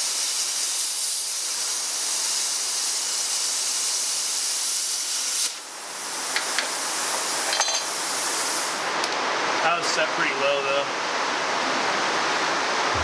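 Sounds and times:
plasma cutter hissing: 0.0 - 8.9.

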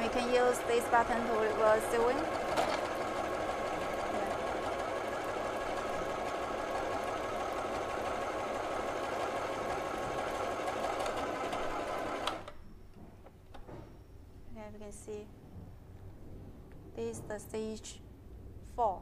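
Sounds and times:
sewing machine whir: 0.0 - 12.6.

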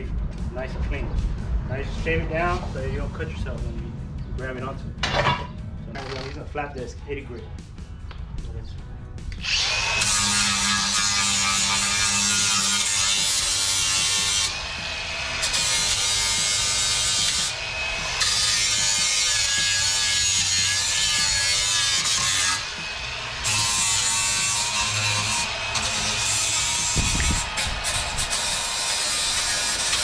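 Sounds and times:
angle grinder grinding steel: 9.3 - 30.0.

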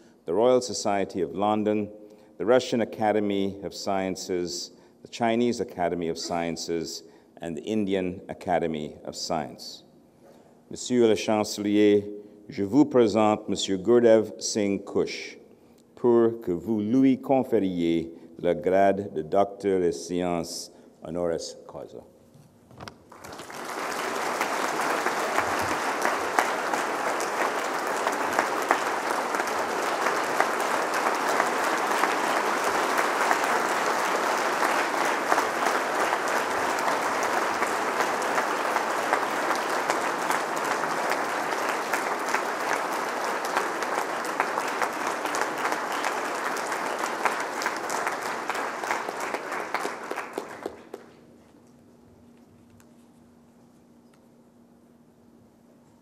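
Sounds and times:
audience applauding: 23.1 - 51.1.

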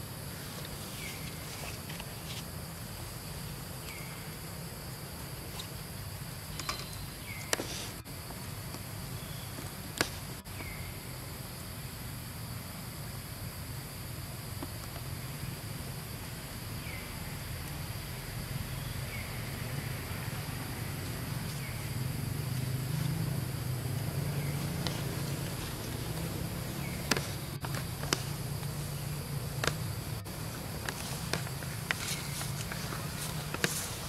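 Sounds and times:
insects droning: 0.0 - 34.0.

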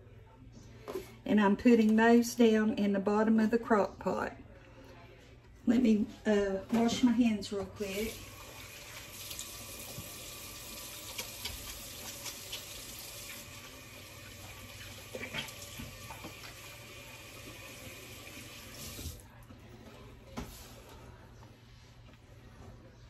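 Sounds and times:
faucet running: 7.8 - 19.2
hands washing splashes: 8.0 - 13.6.

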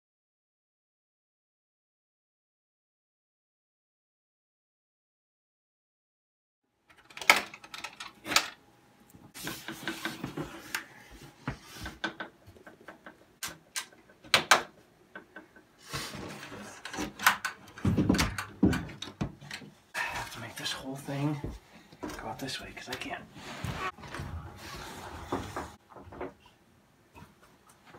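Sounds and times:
wood scraping and rustling: 22.9 - 26.4.

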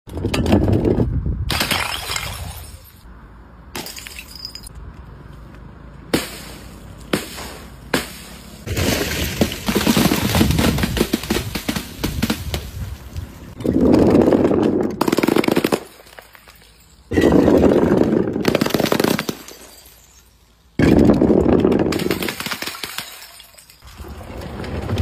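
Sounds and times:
glass bottles smashing: 1.5 - 3.0, 3.8 - 4.7, 15.9 - 17.8, 19.2 - 21.0, 22.0 - 23.9
crackling clattering impacts: 6.1 - 16.6, 23.8 - 25.0.

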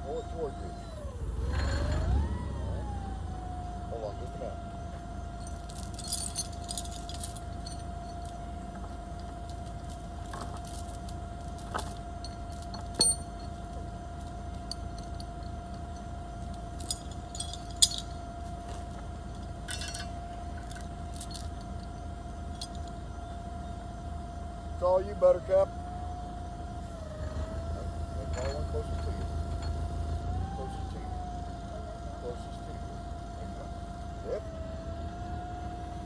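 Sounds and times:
forklift engine idling: 0.0 - 36.0
loose metal jangling: 5.4 - 23.0
sharp metal clanks: 11.6 - 13.6.

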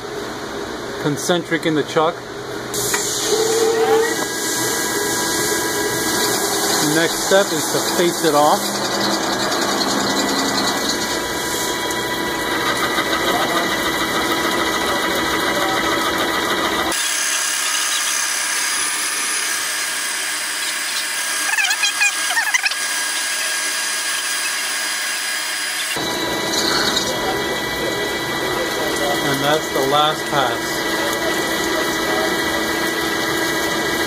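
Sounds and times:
metal lathe whine: 3.0 - 34.0
wavering squeal: 3.2 - 4.3, 5.4 - 14.8, 16.9 - 27.3.

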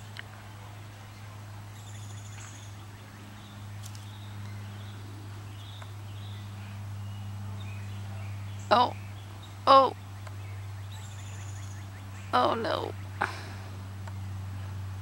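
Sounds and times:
small birds chirping: 0.0 - 15.0
steady low hum: 0.0 - 15.0
bird trill: 1.7 - 13.2.

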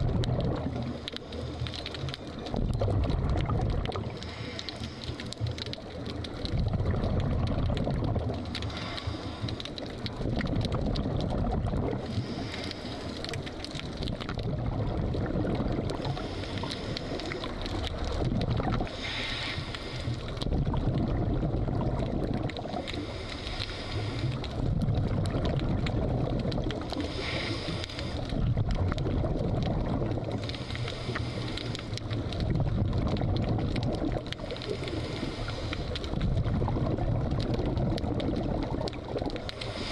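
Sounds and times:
gurgling exhaled bubbles: 0.0 - 39.9
regulator hissing inhale: 4.2 - 5.3, 8.6 - 9.6, 12.0 - 13.2, 16.1 - 17.4, 18.9 - 20.3, 22.9 - 24.4, 27.0 - 28.3, 30.4 - 32.0, 34.7 - 36.0, 39.6 - 39.9.

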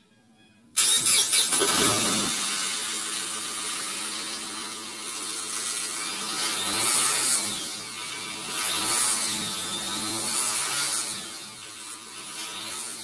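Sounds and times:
car engine revving at exhaust: 3.4 - 13.0.

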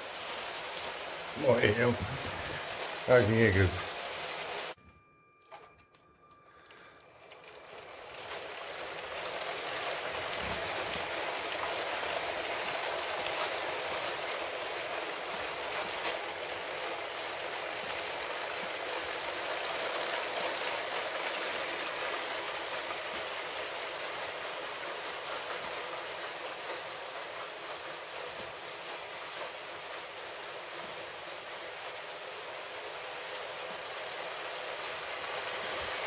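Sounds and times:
toy train wheels clattering: 0.0 - 36.0.

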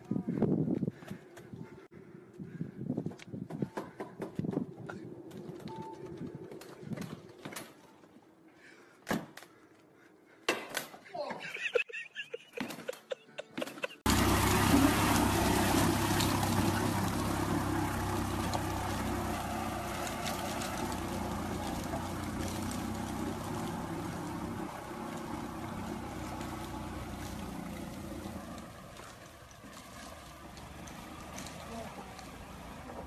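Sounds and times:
golf cart motor hum: 14.0 - 33.0
water churning and splashing: 14.0 - 33.0.

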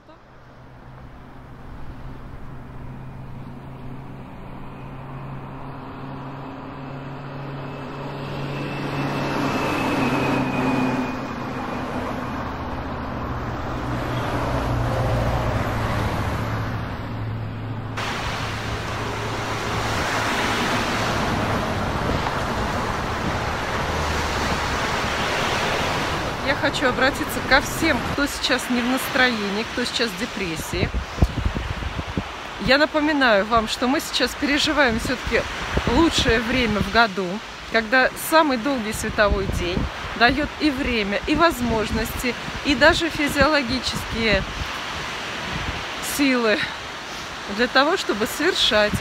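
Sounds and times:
low engine hum: 0.0 - 29.8
wind: 0.0 - 49.0
sea surf: 0.7 - 49.0.

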